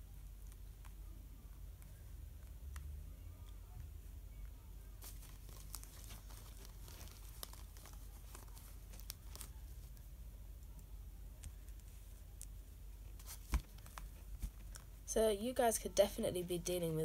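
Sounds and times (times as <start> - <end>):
cards rustling: 5.0 - 10.1, 11.4 - 15.0.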